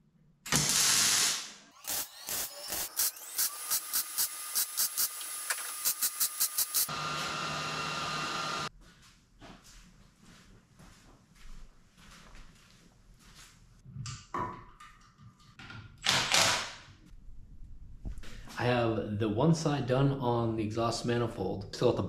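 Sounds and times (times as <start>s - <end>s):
welder hiss: 0.5s - 6.9s
welding tack pulses: 0.5s - 6.9s
welder buzzing: 0.5s - 8.7s.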